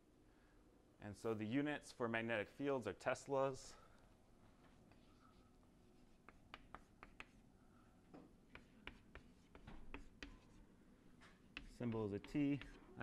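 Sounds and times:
chalk tapping and scratching on chalkboard: 4.7 - 7.5, 8.5 - 13.0.

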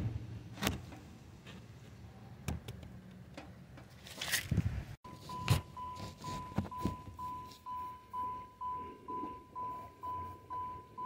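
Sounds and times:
sharp clicks and knocks: 2.4 - 4.4
car warning chime dinging: 5.1 - 11.0.

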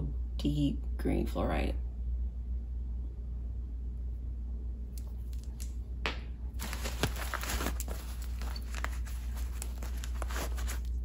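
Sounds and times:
plastic wrap crinkling: 6.5 - 11.0.

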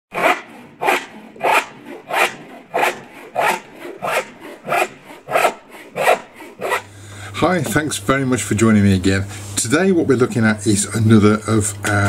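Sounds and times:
hand saw cutting wood: 0.1 - 7.9.

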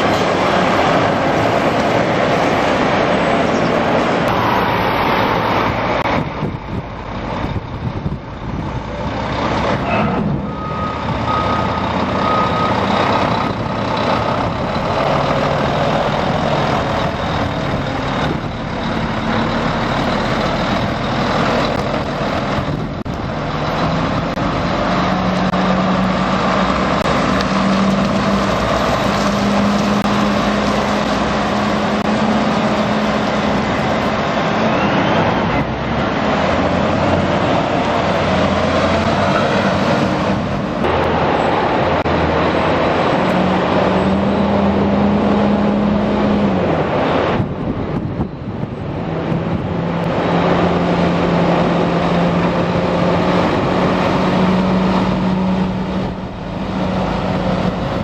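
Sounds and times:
truck diesel engines running: 0.0 - 58.0
reversing beeps: 9.8 - 13.1.

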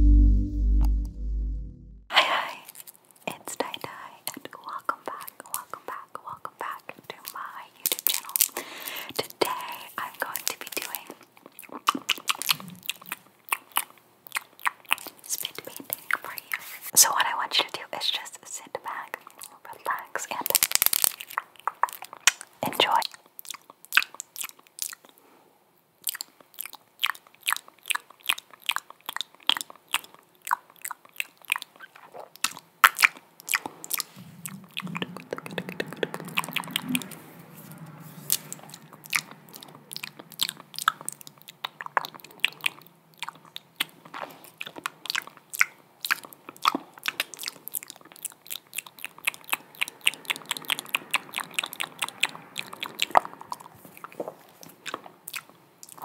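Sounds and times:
low steady sound: 0.0 - 2.2
wet mouth clicks and smacks: 2.7 - 16.6, 18.9 - 25.2, 26.0 - 37.2, 38.3 - 56.0.

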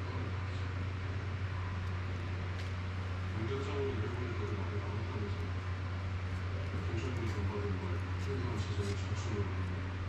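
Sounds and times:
low hum: 0.0 - 10.0.

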